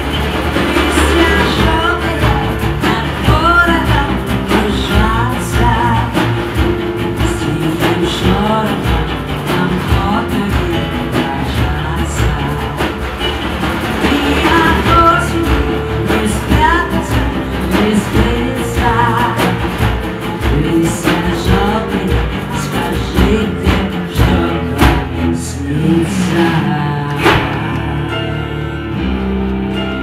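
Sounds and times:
band with guitar and bass: 0.0s - 30.0s
singer with vibrato: 0.4s - 13.4s, 14.0s - 28.5s.

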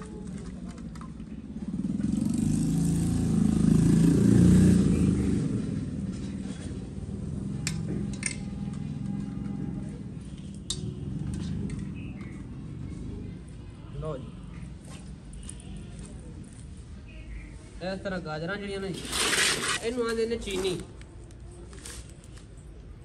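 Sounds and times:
vehicle engine passing by: 1.5s - 13.6s.

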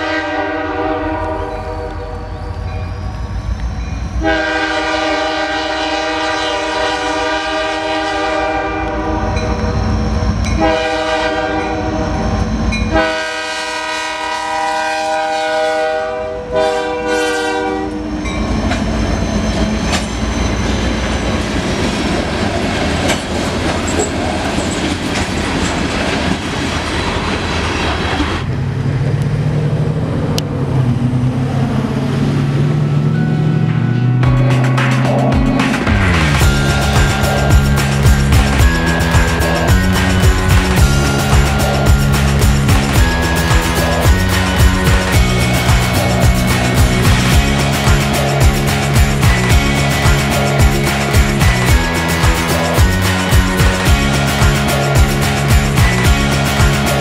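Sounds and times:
locomotive air horn blasts: 0.0s - 2.3s, 4.2s - 9.6s, 10.5s - 18.3s, 36.4s - 48.6s
train rumble: 0.0s - 57.0s
train wheels clacking over rail joints: 19.5s - 28.3s, 34.3s - 57.0s.

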